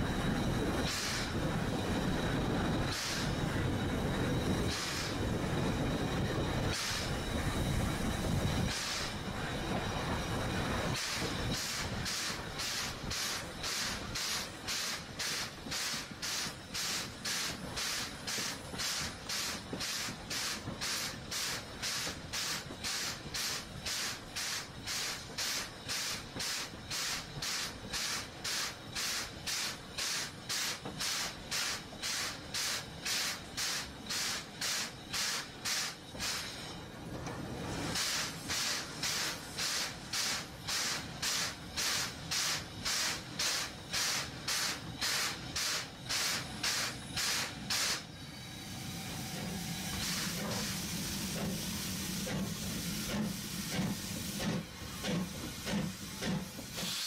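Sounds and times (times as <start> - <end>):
steam locomotive exhaust chuffing: 0.0 - 57.0.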